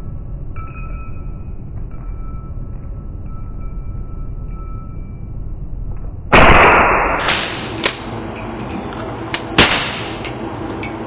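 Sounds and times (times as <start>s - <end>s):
slowed pistol shot boom: 6.3s - 8.0s
sharp cracks: 6.3s - 8.1s, 9.4s - 10.4s.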